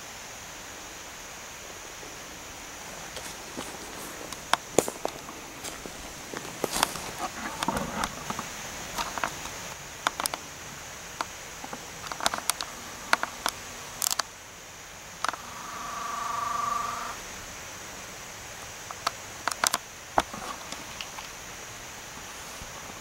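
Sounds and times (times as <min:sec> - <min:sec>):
footsteps on dry leaves and twigs: 0:02.8 - 0:09.7
camcorder zoom motor whirring: 0:15.2 - 0:17.2.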